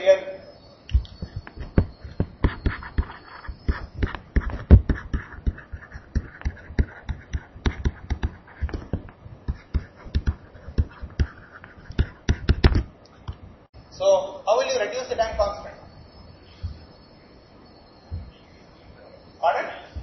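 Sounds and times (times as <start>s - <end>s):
stylus tapping on tablet screen: 0.9s - 13.4s.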